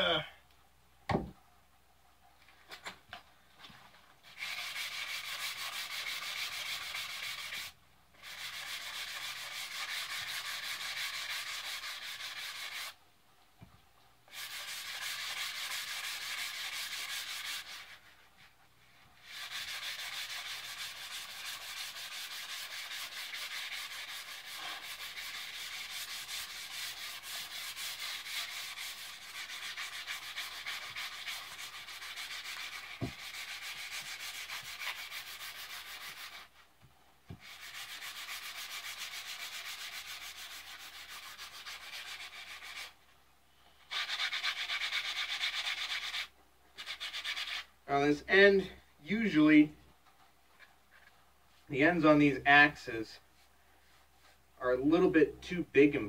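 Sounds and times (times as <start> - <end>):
sandpaper rubbing wood: 4.2 - 13.0, 14.3 - 18.3, 19.2 - 36.6, 37.3 - 43.0, 43.8 - 48.5.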